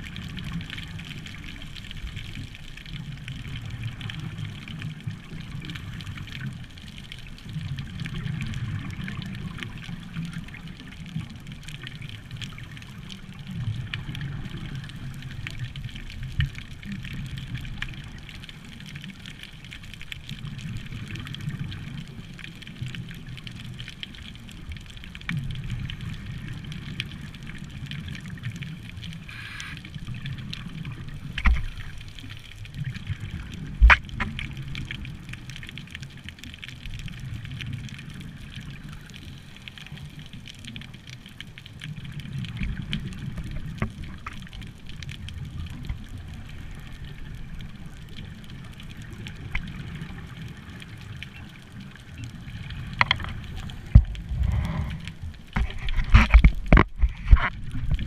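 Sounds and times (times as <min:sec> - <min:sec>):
muffled underwater rumble: 0:00.0 - 0:58.0
diver exhaling bubbles: 0:53.3 - 0:56.4.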